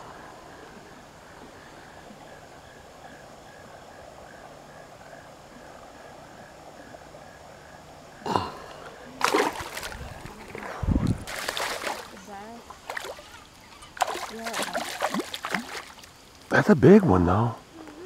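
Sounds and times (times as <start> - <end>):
flowing water rushing: 8.5 - 17.2.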